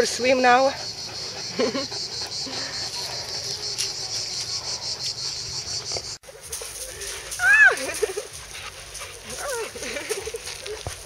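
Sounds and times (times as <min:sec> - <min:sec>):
cicadas chorus: 0:00.0 - 0:08.0.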